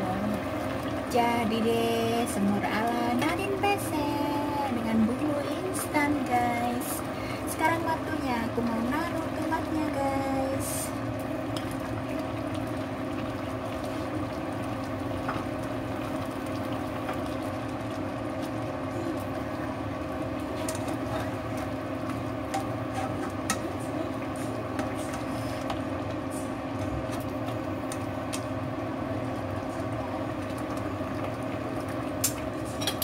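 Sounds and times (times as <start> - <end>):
induction cooker hum: 0.0 - 33.0
stew simmering in a wok: 0.0 - 33.0
spatula scraping a pan: 22.9 - 23.4.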